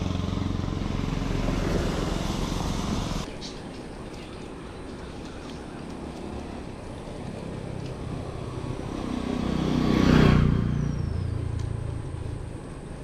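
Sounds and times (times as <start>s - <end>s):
motor vehicle passing: 0.0s - 3.3s, 6.1s - 13.0s.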